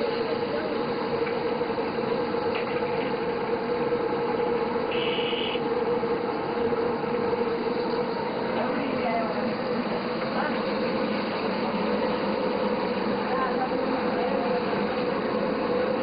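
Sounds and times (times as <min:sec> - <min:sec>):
constant low hum: 0:00.0 - 0:16.0
short high-pitched tone: 0:04.9 - 0:05.6.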